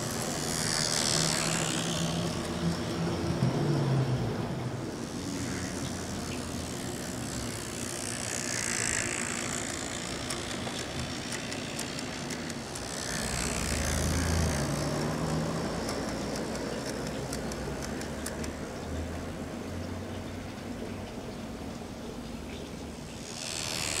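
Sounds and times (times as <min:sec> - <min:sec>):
model train motor whirring: 0:00.0 - 0:19.5, 0:23.0 - 0:24.0
wheels clicking on track: 0:05.0 - 0:19.4.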